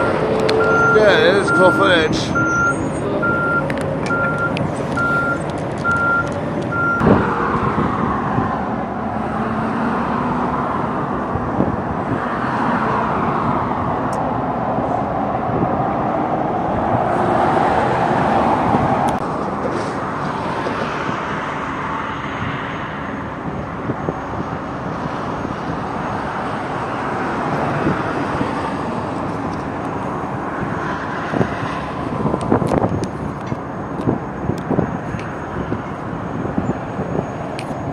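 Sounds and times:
reversing alarm beeping: 0.0s - 7.1s
heavy vehicle engine running: 0.0s - 37.9s.

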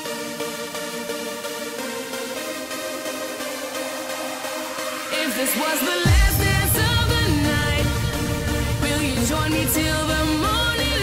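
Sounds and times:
electronic pop music: 0.0s - 11.0s.

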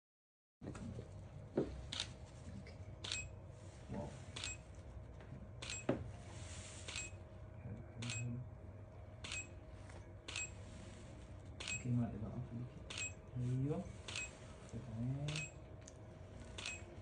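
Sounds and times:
faint steady hum: 0.6s - 17.0s
camera shutter clicking: 16.6s - 16.9s.

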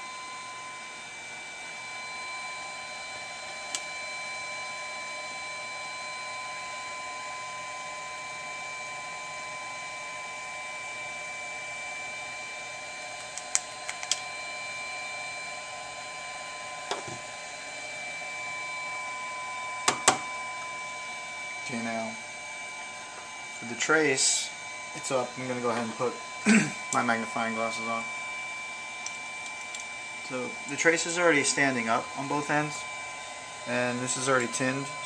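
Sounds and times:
electrical hum: 0.0s - 35.0s
thin whine tones: 13.9s - 35.0s.

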